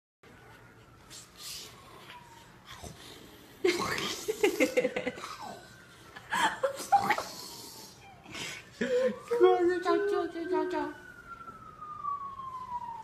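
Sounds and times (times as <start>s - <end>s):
person laughing: 3.6s - 5.4s, 6.2s - 7.4s.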